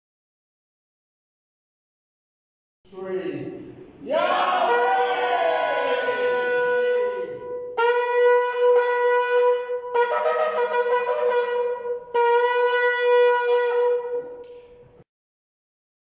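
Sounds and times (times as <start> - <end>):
shofar blasts: 4.1 - 14.8.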